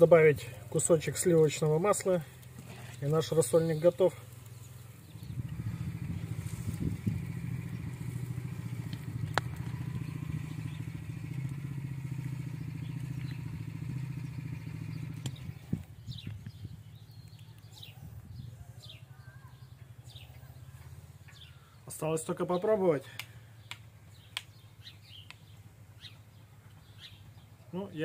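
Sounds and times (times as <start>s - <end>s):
birds chirping: 0.0s - 28.0s
engine hum with fast pulse: 4.2s - 18.1s, 23.3s - 27.7s.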